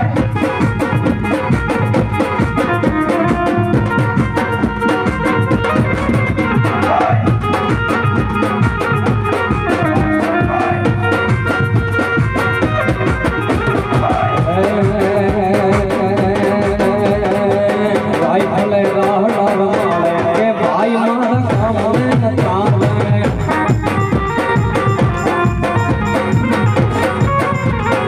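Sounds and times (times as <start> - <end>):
dhol drums: 0.0 - 28.0
drum kit: 0.0 - 28.0
keyboard: 0.0 - 28.0
man singing: 6.6 - 7.4, 9.7 - 11.2, 13.9 - 24.0.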